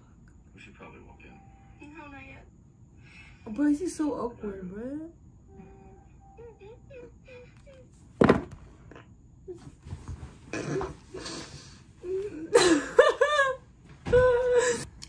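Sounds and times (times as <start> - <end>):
woman laughing: 12.1 - 14.9.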